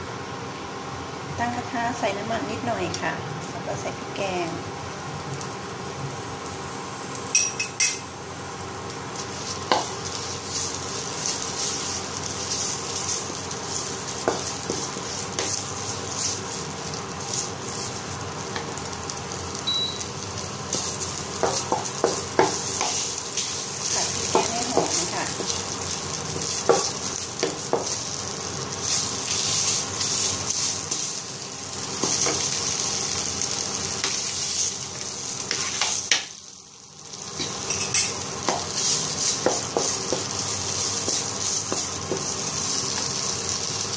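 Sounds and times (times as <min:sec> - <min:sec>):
paste sizzling in hot oil: 0:09.1 - 0:43.9.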